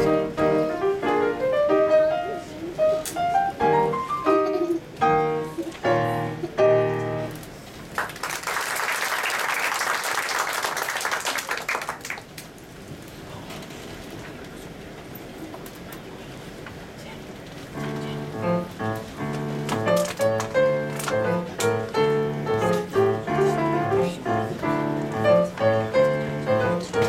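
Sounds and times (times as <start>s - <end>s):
grand piano chords: 0.0s - 7.5s, 17.7s - 27.0s
audience applauding: 7.9s - 12.5s.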